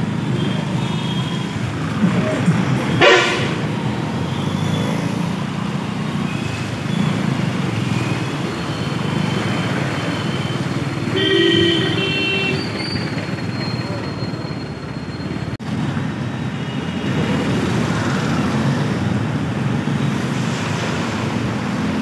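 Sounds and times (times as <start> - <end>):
motorcycle and street traffic: 0.0 - 22.0
vehicle horn: 3.0 - 3.7, 11.1 - 12.7.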